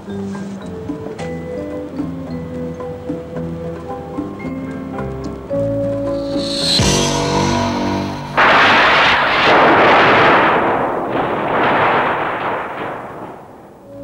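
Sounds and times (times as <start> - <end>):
background music with held notes: 0.0 - 8.4
loud rushing noise: 6.2 - 13.4.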